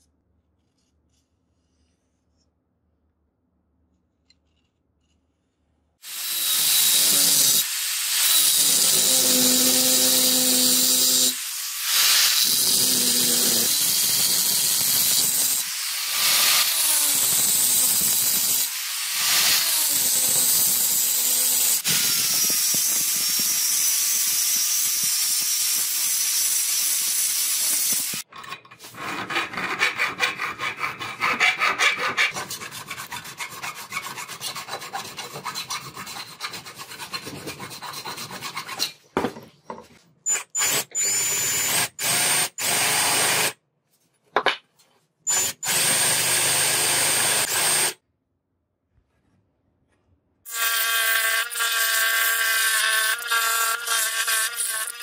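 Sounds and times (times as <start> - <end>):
hacksaw cutting brass: 6.0 - 38.9, 45.3 - 48.0, 50.5 - 55.0
power drill whining: 6.1 - 13.8, 45.3 - 48.0
angle grinder grinding brass: 6.1 - 28.2.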